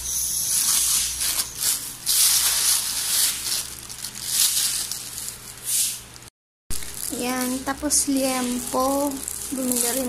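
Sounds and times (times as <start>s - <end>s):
plastic bag crinkling: 0.4s - 10.0s.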